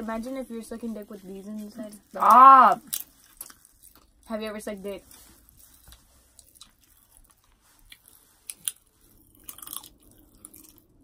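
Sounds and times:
popping candy crackling: 0:00.2 - 0:07.6.

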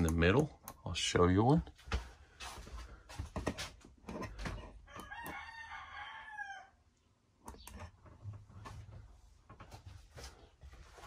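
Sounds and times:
rooster crowing: 0:04.8 - 0:06.8.

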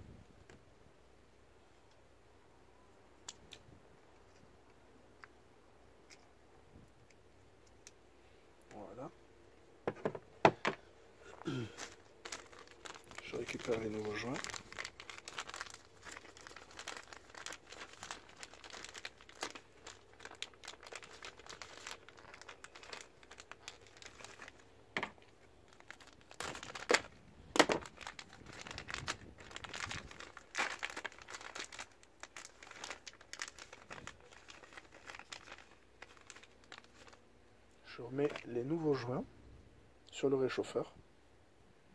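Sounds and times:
plastic bag crinkling: 0:11.2 - 0:37.2.

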